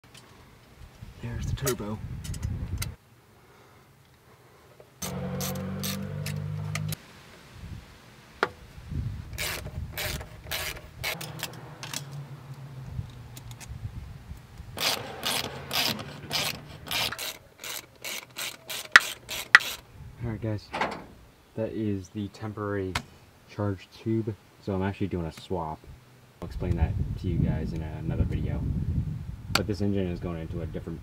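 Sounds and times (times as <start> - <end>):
hand ratchet clicking: 14.8 - 19.8.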